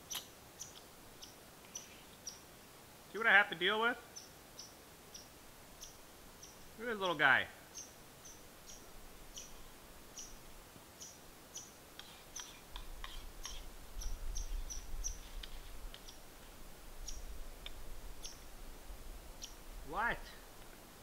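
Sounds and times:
squirrel chirping: 0.0s - 2.4s, 4.1s - 7.1s, 7.7s - 10.4s, 11.0s - 16.3s, 17.0s - 18.5s, 19.4s - 20.1s.

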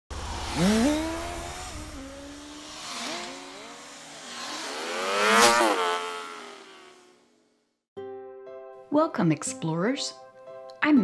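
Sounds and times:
swooping engine-like whine: 0.1s - 7.5s.

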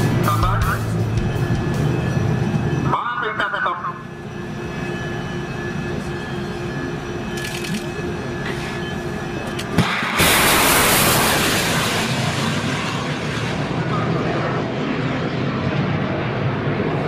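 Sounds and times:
rocket motor roaring: 9.7s - 14.1s.

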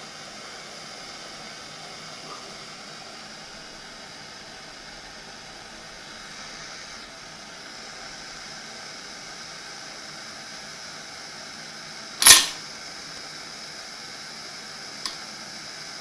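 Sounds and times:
gas torch flame hissing: 0.0s - 16.0s
sharp click: 12.2s - 12.6s.

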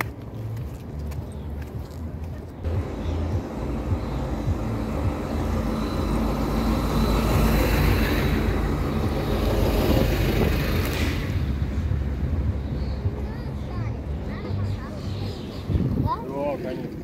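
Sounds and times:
truck driving past: 2.6s - 15.2s.

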